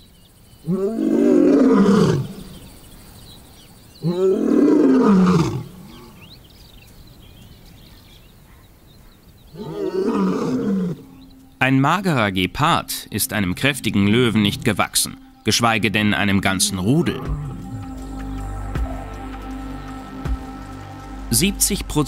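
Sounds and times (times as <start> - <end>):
lion roaring: 0.6 - 2.7, 4.0 - 6.3, 9.5 - 11.2, 16.6 - 18.0.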